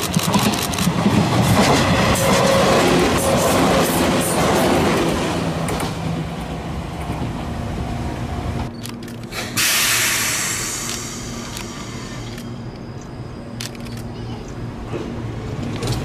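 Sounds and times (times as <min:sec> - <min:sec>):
electric train rolling past: 0:00.0 - 0:16.0
loud hiss of air: 0:09.3 - 0:12.3.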